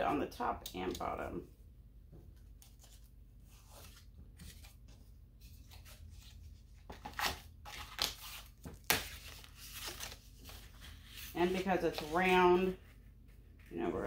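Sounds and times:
paper rustling and crinkling: 0:02.4 - 0:13.0.

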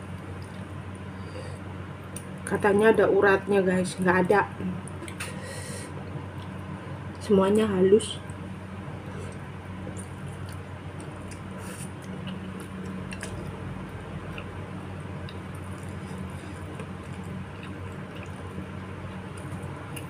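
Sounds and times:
steady low hum: 0:00.0 - 0:20.0
wet chewing and slurping: 0:15.2 - 0:20.0.

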